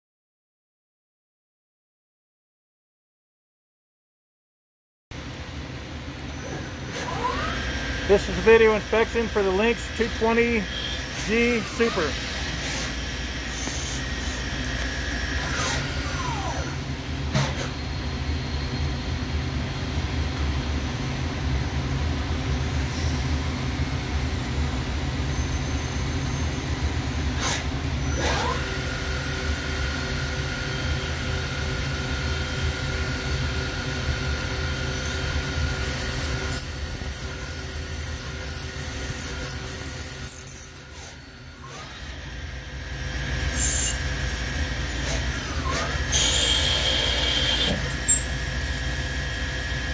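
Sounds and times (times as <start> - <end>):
motor whine: 7.0 - 16.9, 28.1 - 49.9
lathe machine hum: 7.2 - 16.7, 28.6 - 49.9.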